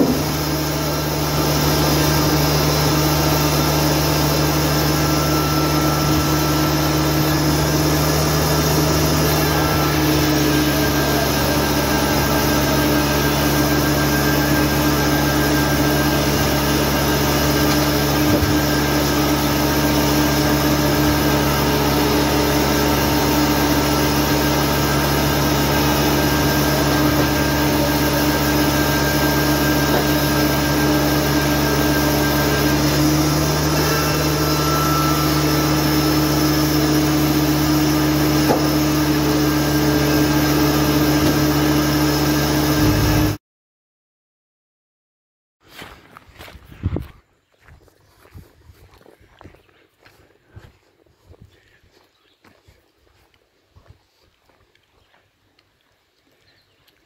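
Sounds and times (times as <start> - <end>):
sawmill machine drone: 0.0 - 43.4.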